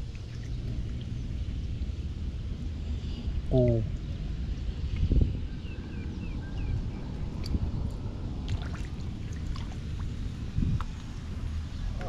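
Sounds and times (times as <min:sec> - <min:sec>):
puddle water sloshing: 0:00.0 - 0:01.1, 0:08.5 - 0:10.2
small splashes and drips: 0:00.0 - 0:01.6, 0:07.3 - 0:11.1.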